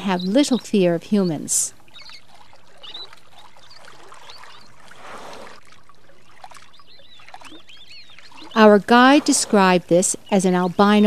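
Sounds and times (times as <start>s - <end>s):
river water lapping: 0.0s - 11.0s.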